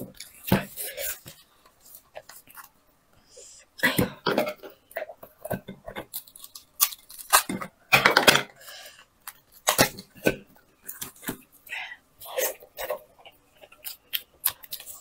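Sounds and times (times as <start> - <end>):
shell cracking and tearing: 6.0 - 7.6.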